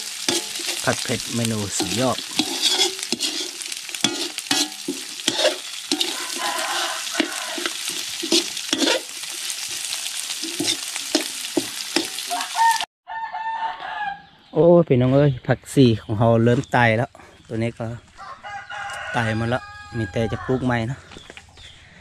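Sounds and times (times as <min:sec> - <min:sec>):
metal spatula scraping a wok: 0:00.0 - 0:12.3
meat sizzling in a wok: 0:00.0 - 0:12.9.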